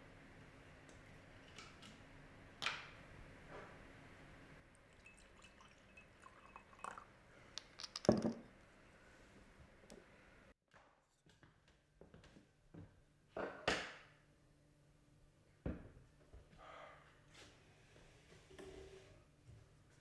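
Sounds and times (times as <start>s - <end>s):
liquid pouring into glass: 4.8s - 7.1s
bottle set down on stone: 7.8s - 8.4s.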